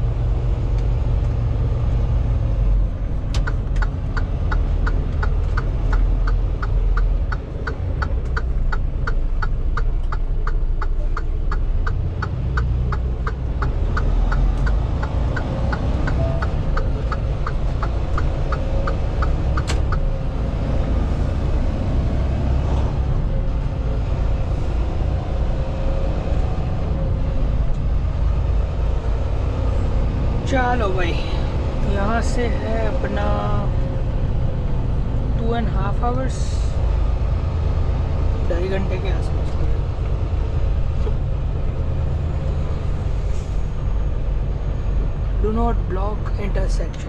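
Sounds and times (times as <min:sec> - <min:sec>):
truck diesel engine running: 0:00.0 - 0:47.0
turn signal ticking: 0:03.0 - 0:22.4, 0:26.4 - 0:47.0.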